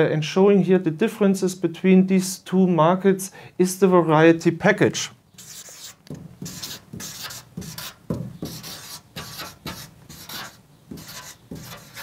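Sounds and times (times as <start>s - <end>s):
marker pen writing on paper: 5.4s - 12.0s.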